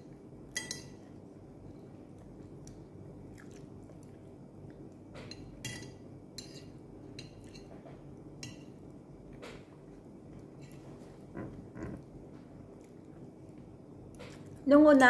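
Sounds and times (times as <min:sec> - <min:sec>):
low steady hum: 0:00.0 - 0:15.0
person chewing: 0:02.2 - 0:05.1.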